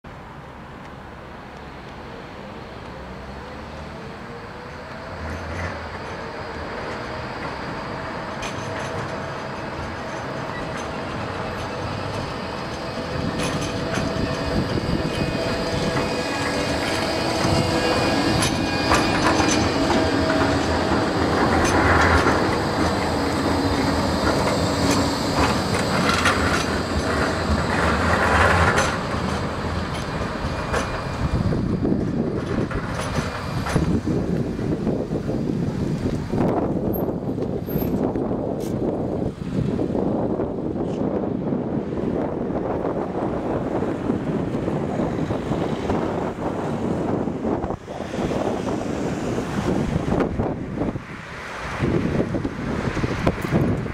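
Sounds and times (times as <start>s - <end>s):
tram drive whine: 0.1s - 53.9s
tram wheels squealing: 2.0s - 39.2s, 40.1s - 53.9s
tram wheels clicking on track: 4.0s - 53.9s.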